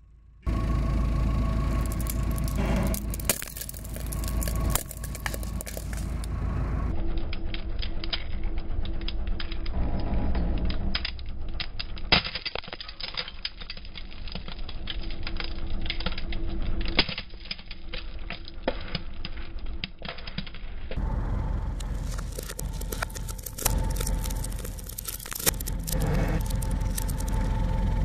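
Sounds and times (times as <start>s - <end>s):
plastic bottles crushed by tyre: 1.8s - 6.3s, 11.9s - 20.9s, 21.8s - 27.4s.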